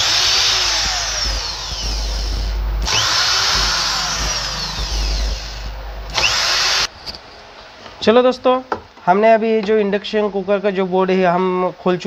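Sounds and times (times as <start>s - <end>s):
drill-driver whining: 0.0s - 6.9s.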